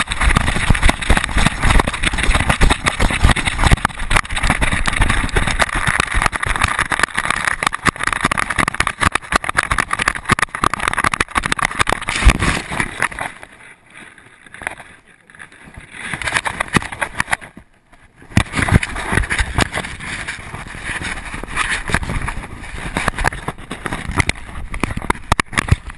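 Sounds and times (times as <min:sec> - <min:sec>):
wind rushing over microphone: 0:00.0 - 0:13.4, 0:15.6 - 0:25.9.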